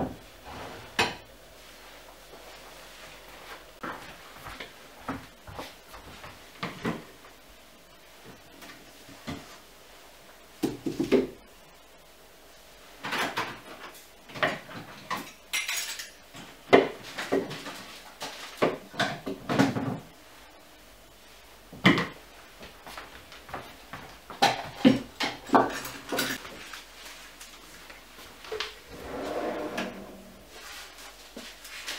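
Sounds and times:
metal kitchenware clattering: 15.2 - 16.2.

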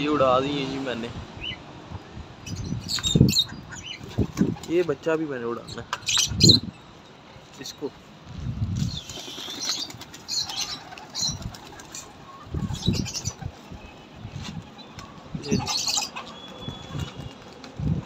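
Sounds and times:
pigeon wings flapping: 9.0 - 12.2, 16.2 - 18.0.

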